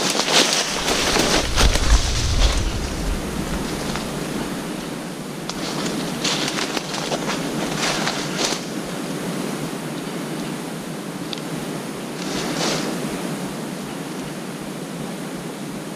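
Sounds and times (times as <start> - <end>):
footsteps through dry leaves: 0.0 - 5.0
leaves and twigs crackling: 0.0 - 8.9
steady hiss: 0.4 - 8.9.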